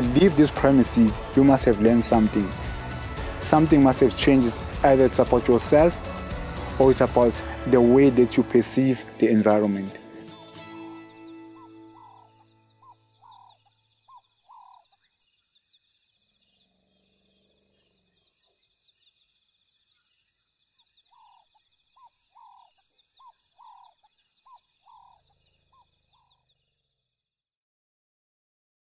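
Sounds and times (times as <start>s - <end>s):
high chirring with rapid ticks: 11.3s - 15.0s.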